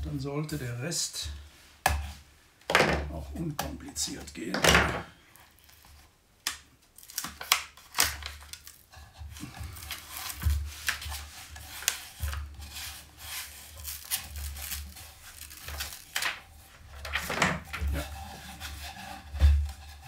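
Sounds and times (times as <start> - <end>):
backing film peeling off sanding pad: 9.6 - 17.3.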